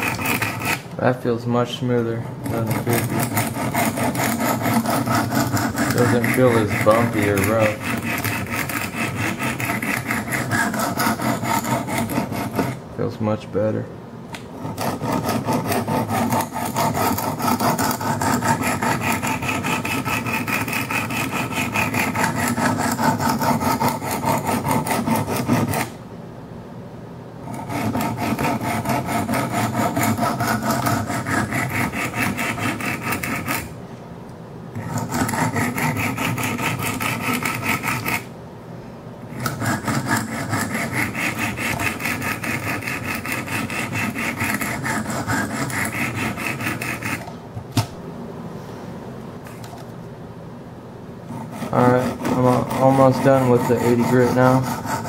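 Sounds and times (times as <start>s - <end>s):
sharpening stones rasping on knife: 0.0s - 0.8s, 2.4s - 12.8s, 14.7s - 25.9s, 27.5s - 33.7s, 34.8s - 38.2s, 39.4s - 47.2s, 51.4s - 55.0s.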